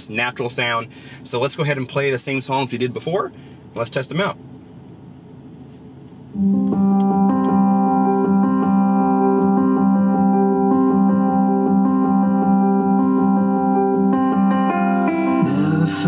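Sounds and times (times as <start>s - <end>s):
music from car speakers: 5.9s - 16.0s.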